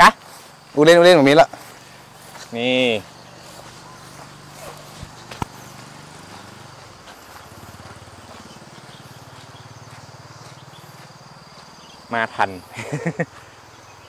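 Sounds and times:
low engine hum: 0:01.6 - 0:11.8.

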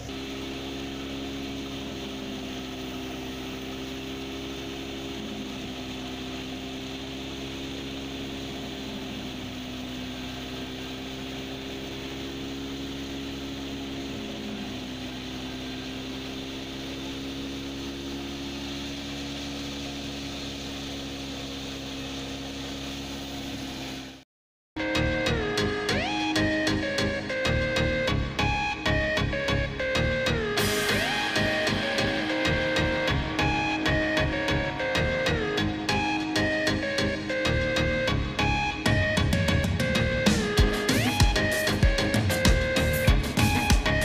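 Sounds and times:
thresher mechanical hum: 0:00.0 - 0:24.2, 0:24.9 - 0:44.0
whirr of drum and fan: 0:25.3 - 0:44.0.

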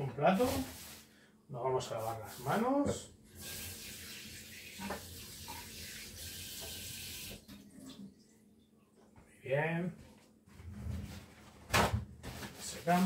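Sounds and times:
tap water running over hands: 0:03.4 - 0:07.6.

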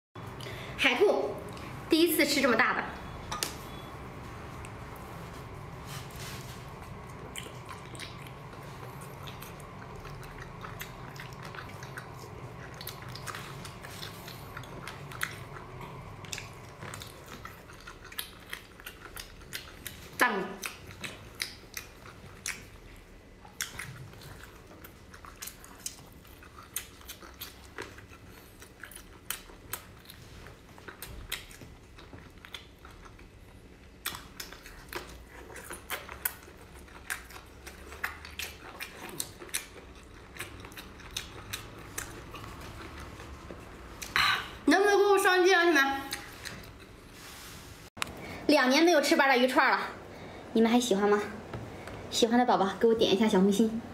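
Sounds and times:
chewing and biting food: 0:04.5 - 0:44.6, 0:46.0 - 0:47.1.

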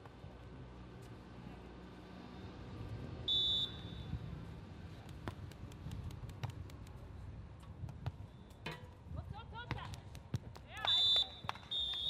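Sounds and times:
referee's whistle blast: 0:03.3 - 0:04.1.

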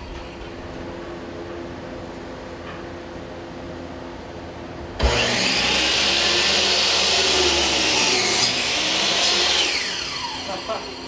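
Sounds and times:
loud machine whirring: 0:05.0 - 0:11.0.

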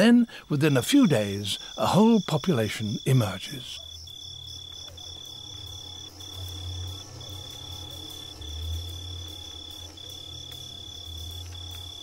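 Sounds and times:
insect trilling: 0:00.0 - 0:12.0
low music drone: 0:05.6 - 0:12.0.

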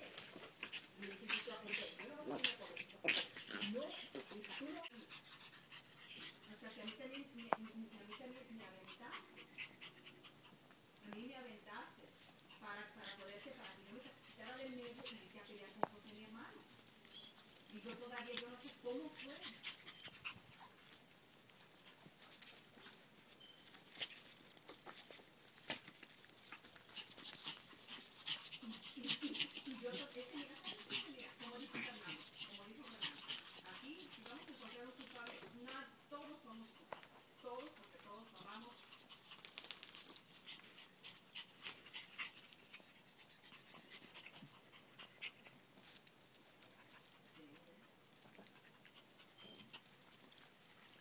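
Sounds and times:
dog claws scratching on concrete: 0:00.0 - 0:10.3, 0:11.0 - 0:35.9, 0:36.5 - 0:51.0
paws pattering: 0:00.0 - 0:51.0.

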